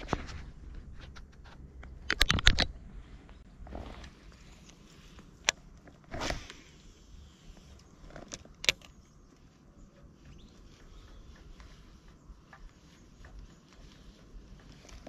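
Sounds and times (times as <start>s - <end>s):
reel handling: 3.6s - 15.0s.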